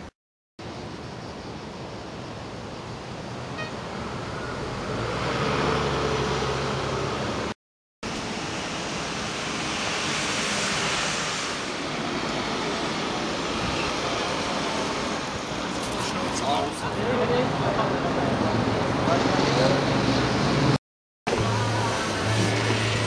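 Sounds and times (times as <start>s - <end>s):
traffic hiss: 0.6s - 23.0s
vehicle passing: 3.9s - 7.5s.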